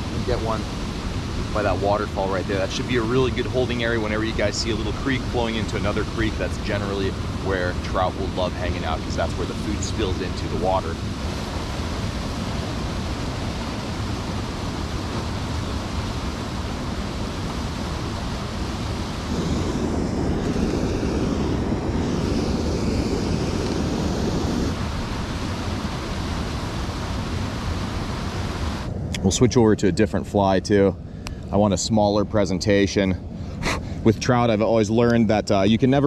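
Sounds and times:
water pouring over waterfall: 0:00.0 - 0:21.3
wind on microphone: 0:00.0 - 0:36.0.

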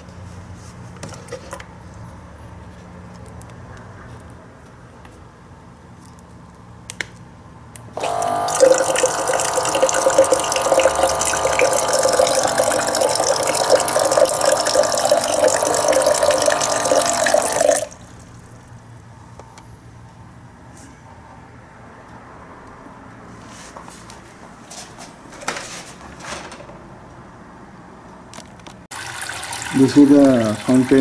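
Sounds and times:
small pump motor humming: 0:08.0 - 0:18.3
water pouring and splashing: 0:08.6 - 0:18.0, 0:28.9 - 0:31.0.

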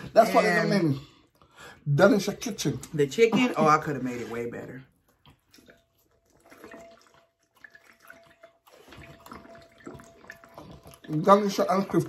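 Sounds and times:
swallowing gulps: 0:05.0 - 0:11.2
drinking from plastic bottle: 0:05.2 - 0:11.9.

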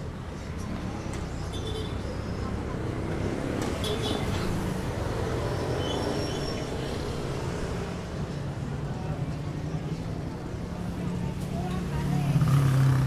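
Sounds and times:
street traffic noise: 0:00.0 - 0:13.0
motorcycle engines running: 0:10.6 - 0:13.0.

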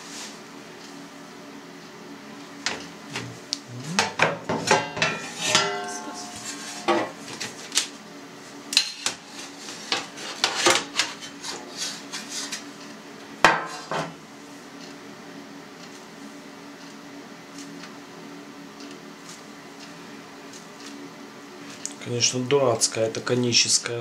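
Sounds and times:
steel trays clattering: 0:04.6 - 0:07.6
ringing metal clang: 0:04.8 - 0:07.1.

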